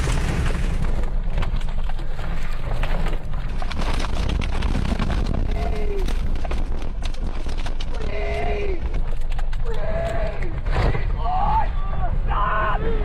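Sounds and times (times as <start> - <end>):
rain and debris knocking on car: 0.0 - 2.0, 3.5 - 8.0
wind buffeting car low rumble: 0.0 - 13.0.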